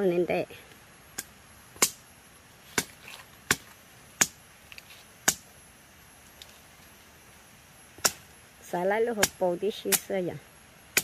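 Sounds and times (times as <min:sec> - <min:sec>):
sharp chopping strikes: 0:01.2 - 0:02.0, 0:02.7 - 0:04.4, 0:05.2 - 0:05.5, 0:08.0 - 0:08.2.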